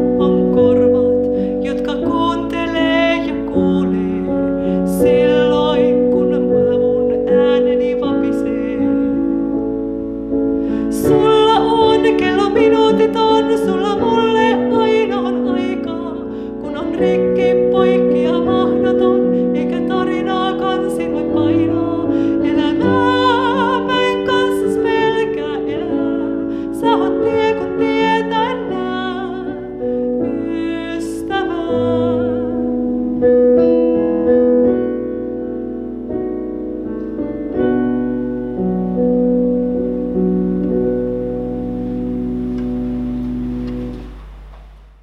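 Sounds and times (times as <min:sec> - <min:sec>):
woman singing a hymn: 0:00.0 - 0:09.7, 0:10.6 - 0:33.2
digital piano: 0:00.0 - 0:45.0.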